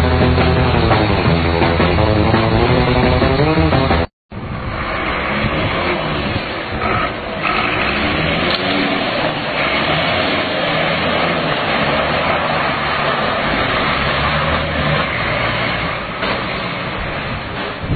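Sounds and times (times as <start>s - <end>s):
truck engine revving: 0.0s - 17.9s
constant rushing noise: 3.9s - 17.9s.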